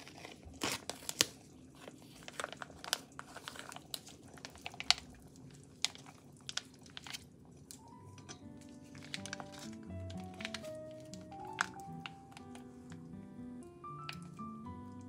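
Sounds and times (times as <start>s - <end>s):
plastic pouch crinkling: 0.0s - 13.2s, 13.9s - 15.0s
soft music: 7.7s - 15.0s.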